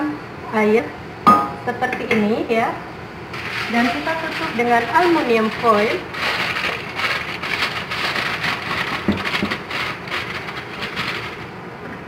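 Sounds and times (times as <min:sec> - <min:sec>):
aluminium foil crinkling: 0:03.3 - 0:11.5.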